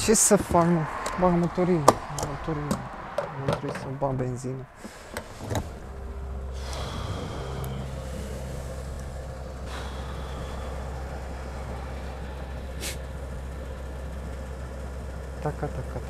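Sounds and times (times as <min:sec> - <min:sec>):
fuel pump hum: 0:00.0 - 0:16.0
fuel flowing hiss: 0:04.0 - 0:16.0.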